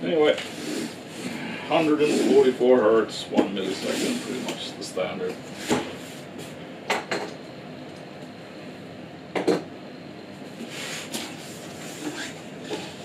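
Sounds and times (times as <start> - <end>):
cardboard scraping: 3.6 - 4.6.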